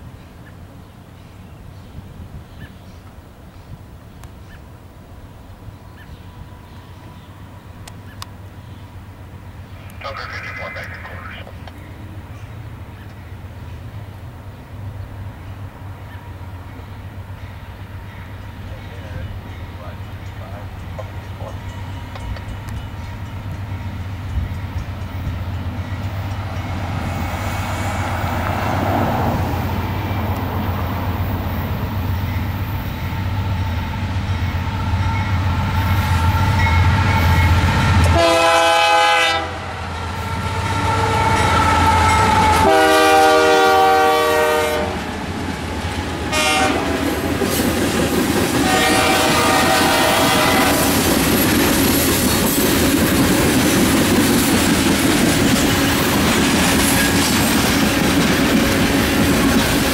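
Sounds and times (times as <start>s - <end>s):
diesel locomotives rumbling: 0.0s - 59.9s
train wheels clacking on rails: 16.8s - 28.9s, 45.0s - 59.9s
train horn blasts: 34.5s - 45.0s, 46.3s - 47.0s, 48.6s - 51.0s.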